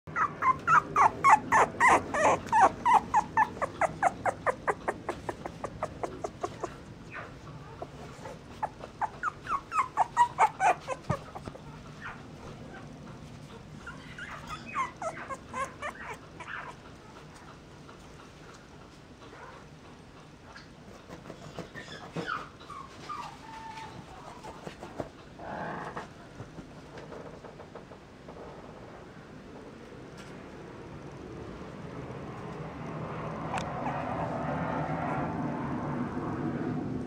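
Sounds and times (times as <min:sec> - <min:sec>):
puppies whimpering: 0:00.1 - 0:12.9, 0:13.5 - 0:16.8.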